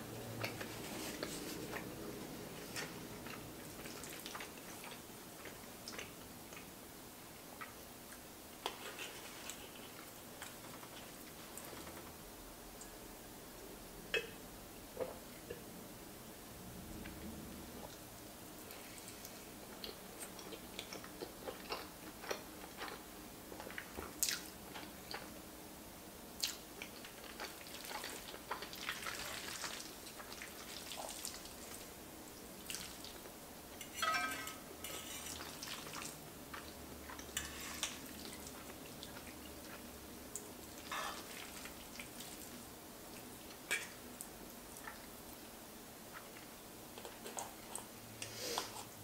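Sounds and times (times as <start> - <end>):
wet chewing and slurping: 0.4 - 6.7, 26.4 - 31.9, 46.1 - 49.0.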